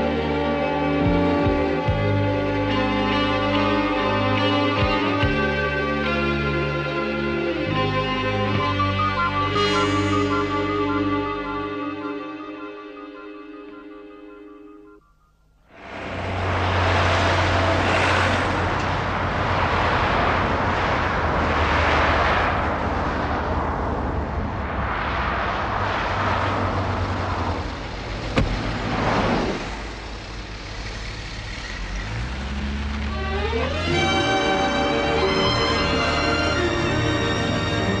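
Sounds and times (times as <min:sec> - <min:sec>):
cars passing: 0:00.0 - 0:12.6, 0:15.7 - 0:38.0
low engine hum: 0:15.7 - 0:38.0.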